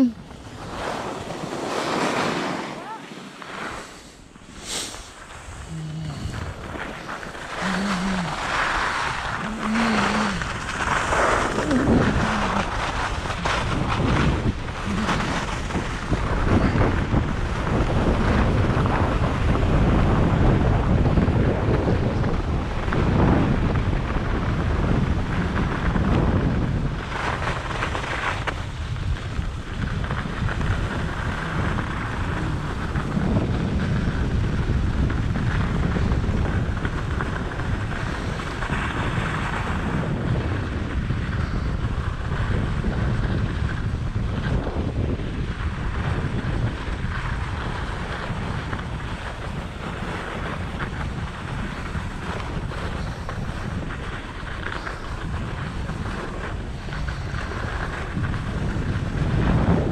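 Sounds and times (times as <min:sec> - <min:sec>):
skis scraping over snow: 0:00.0 - 0:59.9
wind buffeting microphone: 0:00.0 - 0:59.9.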